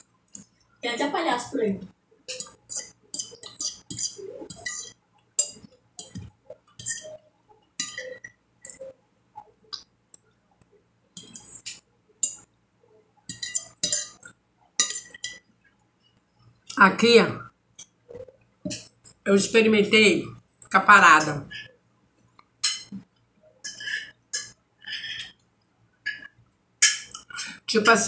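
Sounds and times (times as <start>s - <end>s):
spoon scraping glass plate: 2.3s - 8.9s, 13.3s - 15.4s.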